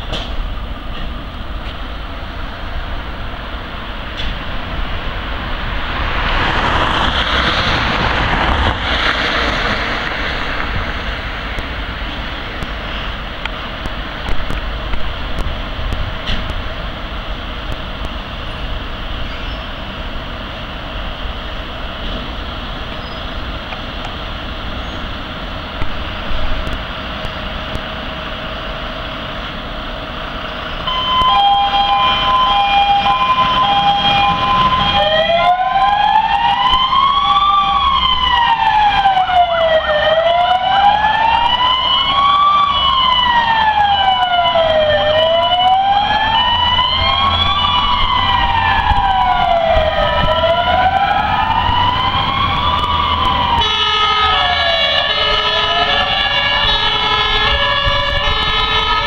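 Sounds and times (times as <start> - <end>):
fire truck engines rumbling: 0.0 - 59.0
wailing siren: 2.7 - 12.0, 30.8 - 59.0
two-tone siren: 30.8 - 59.0.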